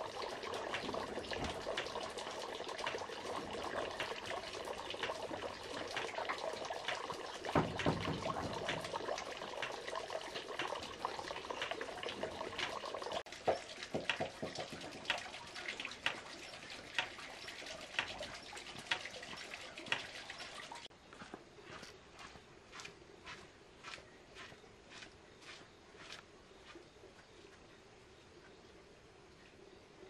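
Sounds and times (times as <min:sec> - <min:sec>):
liquid trickling and pouring: 0:00.0 - 0:20.9.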